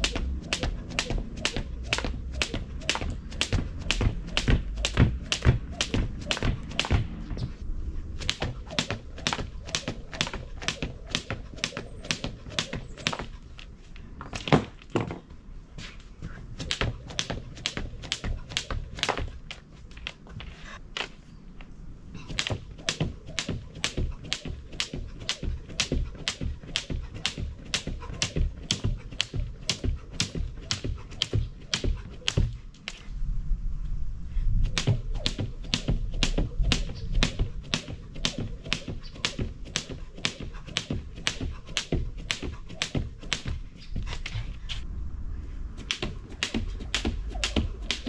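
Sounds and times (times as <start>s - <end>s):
skipping rope slapping the ground: 0.0s - 7.2s, 8.2s - 13.4s, 16.6s - 20.2s, 22.3s - 32.6s, 34.7s - 44.3s, 45.9s - 48.0s.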